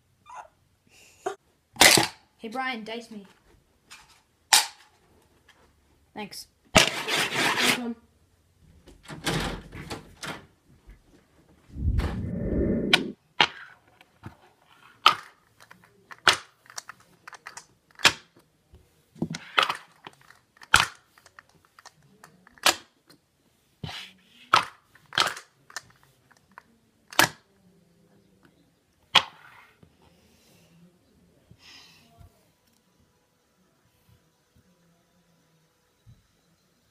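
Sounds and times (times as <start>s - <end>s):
loud muffled bump: 11.8s - 13.2s.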